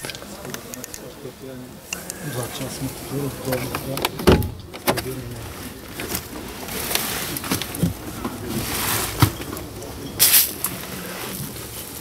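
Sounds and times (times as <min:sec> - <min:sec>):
people talking: 0:00.0 - 0:11.6
knocks and thumps of door opening: 0:04.2 - 0:04.9.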